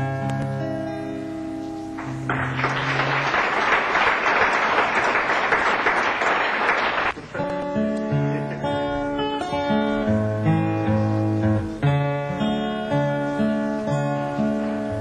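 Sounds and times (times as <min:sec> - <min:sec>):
acoustic guitar: 0:00.0 - 0:03.9, 0:06.8 - 0:15.0
audience applauding: 0:02.0 - 0:07.5.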